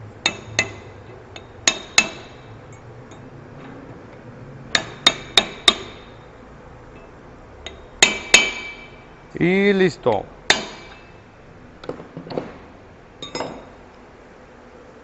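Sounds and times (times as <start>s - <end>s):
hammer striking steel bar: 0.2s - 2.5s, 4.7s - 6.1s, 7.7s - 9.0s, 10.5s - 11.2s.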